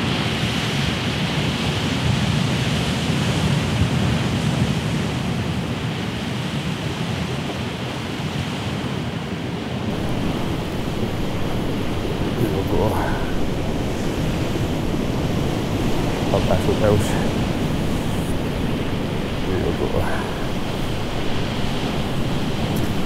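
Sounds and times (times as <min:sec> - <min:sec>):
wind: 0:00.0 - 0:23.0
sea surf on rocky shore: 0:07.8 - 0:23.0.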